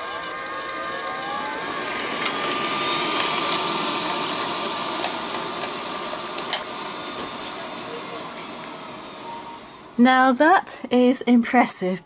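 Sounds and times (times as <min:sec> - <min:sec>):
robot vacuum cleaner humming: 0:00.0 - 0:11.2.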